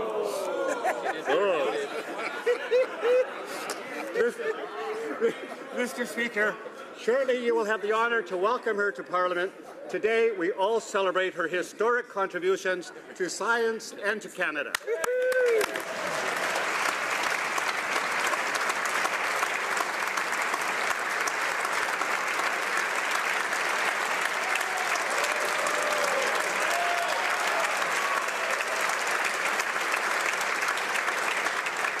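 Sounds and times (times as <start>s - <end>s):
people applauding: 14.7s - 32.0s.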